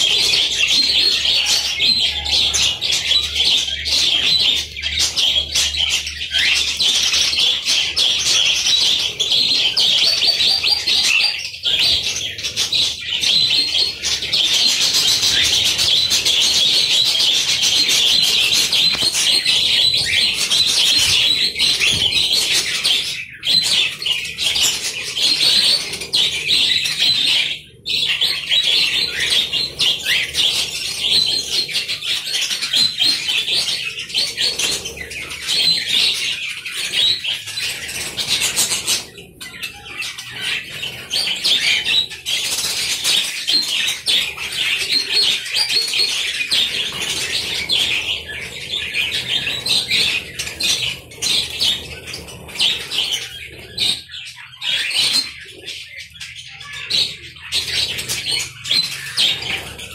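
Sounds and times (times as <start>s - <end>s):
budgerigars chattering: 0.0s - 59.9s.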